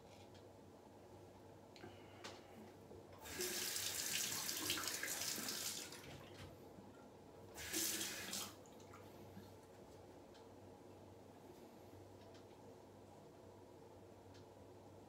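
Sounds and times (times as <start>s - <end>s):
water running from sink tap: 3.2s - 6.2s, 7.6s - 8.6s.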